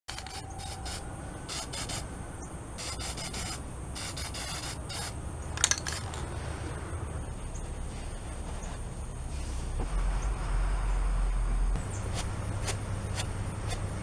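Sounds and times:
spray paint can hissing: 0:00.1 - 0:02.1, 0:02.8 - 0:06.0.

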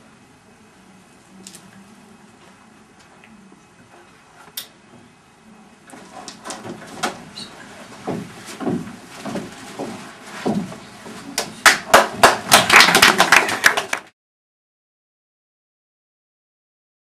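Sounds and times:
knocks and thumps on stage: 0:08.0 - 0:10.8.

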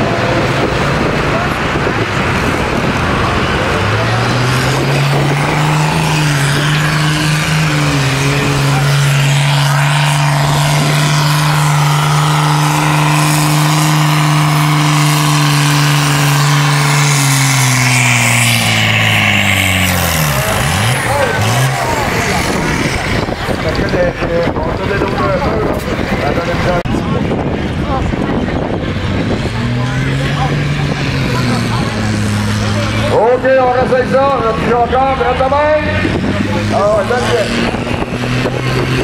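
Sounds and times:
tractor diesel engine at full throttle: 0:00.0 - 0:39.0.

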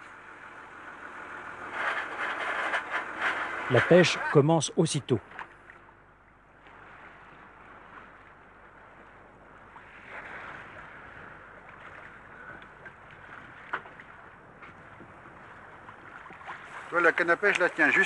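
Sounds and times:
wind and sea water hiss: 0:06.4 - 0:18.0.

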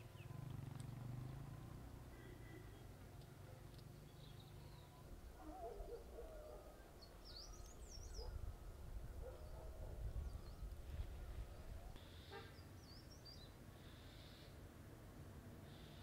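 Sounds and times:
small birds chirping: 0:02.2 - 0:08.4
wind rumble: 0:07.6 - 0:12.0.

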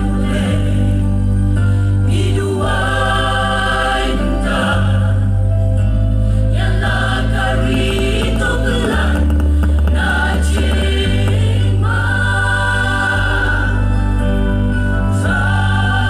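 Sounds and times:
mixed choir singing in harmony: 0:00.0 - 0:16.0.

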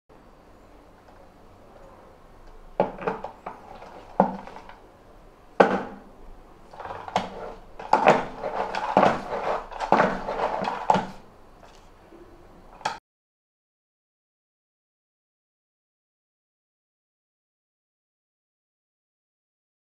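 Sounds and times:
plastic knocks and clatter: 0:02.8 - 0:04.8, 0:05.6 - 0:06.1, 0:06.7 - 0:11.2
spin mop rattling: 0:02.8 - 0:04.8, 0:06.6 - 0:11.2.

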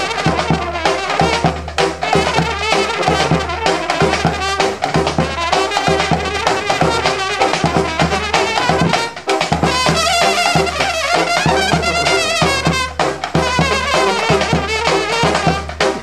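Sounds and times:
bass drum and drum kit: 0:00.0 - 0:16.0
brass band playing: 0:00.0 - 0:16.0
trumpets and tenor horns: 0:00.0 - 0:16.0
tuba bass line: 0:00.0 - 0:16.0.

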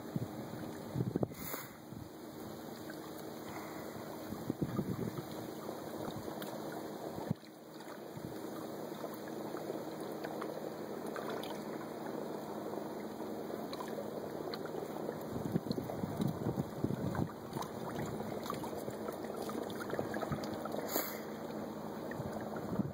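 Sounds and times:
choppy lake water: 0:00.0 - 0:22.9
wind: 0:00.0 - 0:22.9
wind gusts buffeting microphone: 0:00.1 - 0:02.1, 0:04.2 - 0:05.3, 0:15.3 - 0:17.4, 0:22.2 - 0:22.9.

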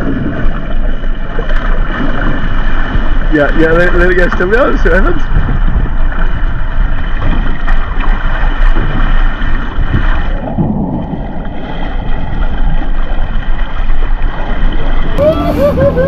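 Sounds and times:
boat engine running: 0:00.0 - 0:16.0
wind buffeting microphone: 0:00.0 - 0:16.0.

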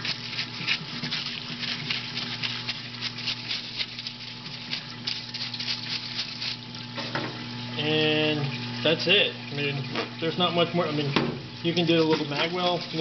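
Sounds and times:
stiff brush scrubbing: 0:00.0 - 0:07.0, 0:09.9 - 0:13.0
solvent pump humming: 0:00.0 - 0:13.0.

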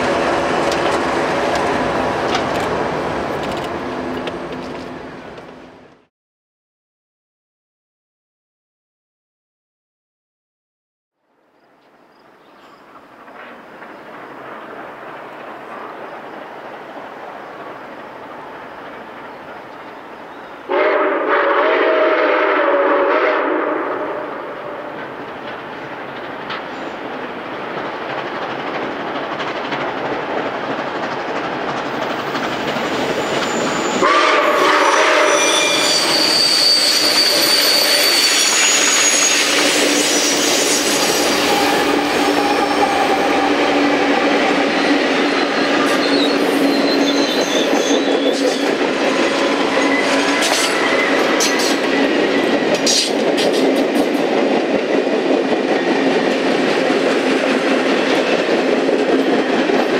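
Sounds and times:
train cars rolling past: 0:00.0 - 0:06.1, 0:11.7 - 0:59.9
train wheels squealing: 0:32.2 - 0:34.0, 0:34.7 - 0:53.2
wheels clicking over rail joints: 0:50.3 - 0:59.9.

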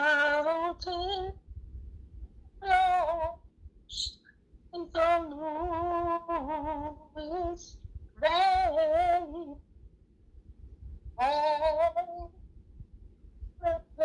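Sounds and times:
woman singing unaccompanied: 0:00.0 - 0:01.4, 0:02.6 - 0:04.1, 0:04.8 - 0:09.6, 0:11.2 - 0:12.3, 0:13.6 - 0:14.0.

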